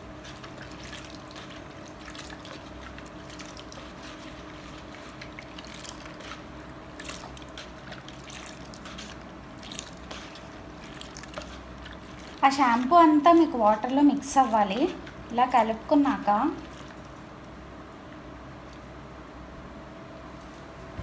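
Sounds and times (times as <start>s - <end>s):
faint steady hum: 0.0s - 21.0s
water sloshing in mug: 0.2s - 13.9s, 16.5s - 17.2s.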